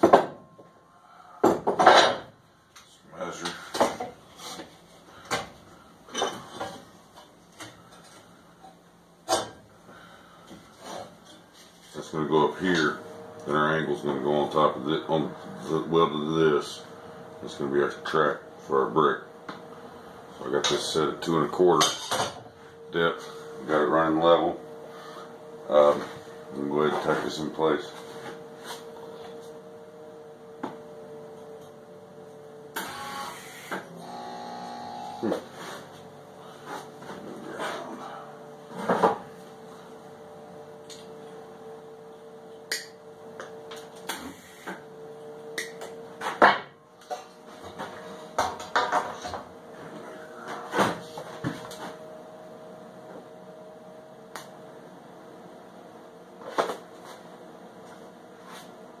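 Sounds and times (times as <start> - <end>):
welder electrical hum: 0.0 - 59.0
welder humming: 22.6 - 46.2
welding arc noise: 32.7 - 35.5, 43.7 - 44.9.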